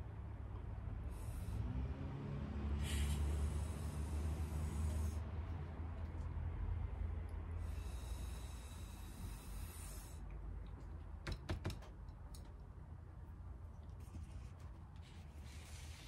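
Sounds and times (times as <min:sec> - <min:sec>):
steady low hum: 0:00.0 - 0:11.3
breath blown through a straw: 0:01.1 - 0:05.3, 0:07.6 - 0:10.2.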